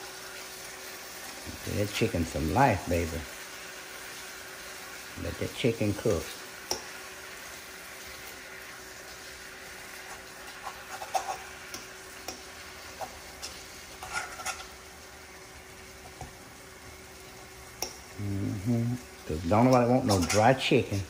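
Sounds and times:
chicken sizzling in frying pan: 0.0s - 21.0s
utensil scraping pan: 10.0s - 14.9s, 19.4s - 21.0s.

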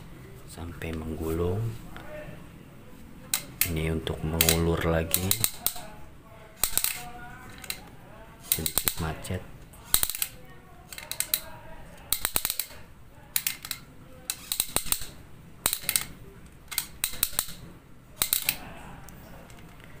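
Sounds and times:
toy crane winch gear clicking: 3.3s - 5.8s, 8.4s - 9.0s, 9.9s - 11.5s, 12.1s - 12.8s, 13.4s - 16.1s, 16.7s - 17.6s, 18.2s - 18.6s.

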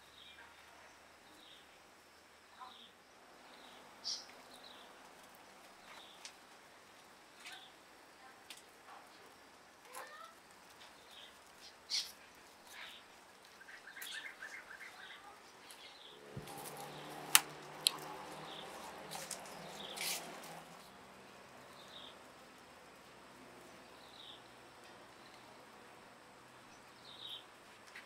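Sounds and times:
small birds chirping: 2.5s - 22.6s, 23.3s - 25.8s, 26.6s - 28.0s
sharp clicks: 16.4s - 18.1s.

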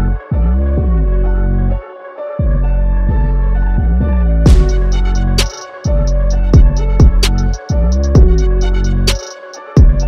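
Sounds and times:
deep bass kicks: 2.4s - 9.1s, 9.8s - 10.0s
snare hit: 4.5s - 6.0s
electronic beat: 4.5s - 10.0s
hi-hat ticks: 4.5s - 10.0s.

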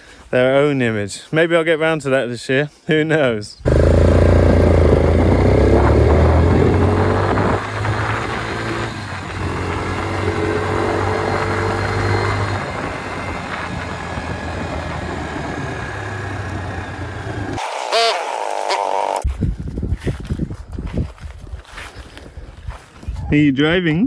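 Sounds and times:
quad bike engine running: 3.6s - 19.3s.

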